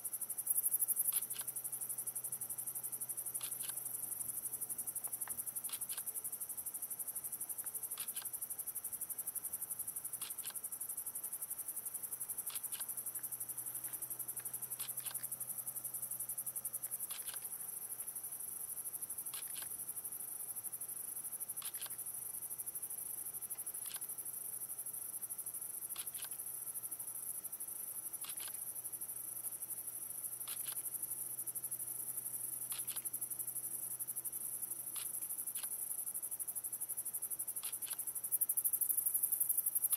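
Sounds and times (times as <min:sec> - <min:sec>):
crickets trilling: 0:09.8 - 0:39.9
cricket double chirp: 0:10.0 - 0:39.9.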